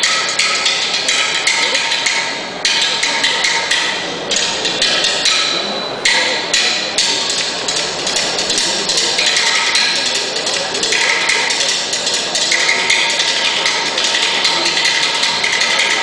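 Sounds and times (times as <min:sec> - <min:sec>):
drums struck in driving rhythm: 0:00.0 - 0:16.0.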